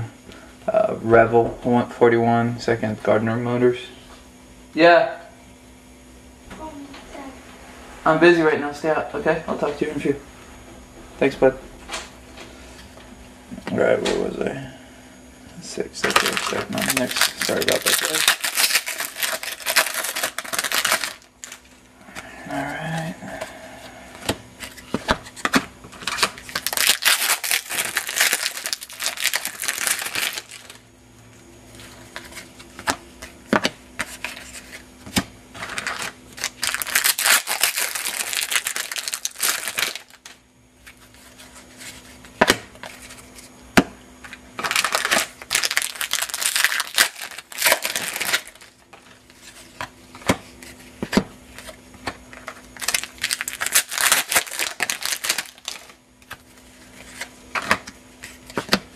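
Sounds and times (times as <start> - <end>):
faint steady hum: 0.0 - 58.9
foil wrappers tearing and crinkling: 16.0 - 21.8, 24.6 - 30.8, 35.5 - 41.8, 44.6 - 50.7, 51.5 - 58.7.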